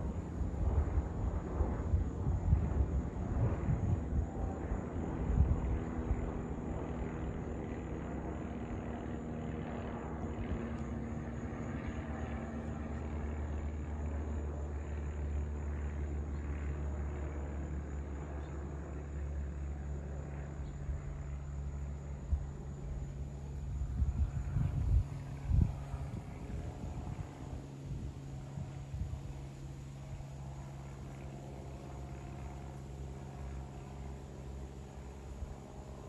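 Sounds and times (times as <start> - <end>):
wind rumble on microphone: 0.0 - 14.2, 20.8 - 34.1
propeller plane droning overhead: 0.0 - 36.0.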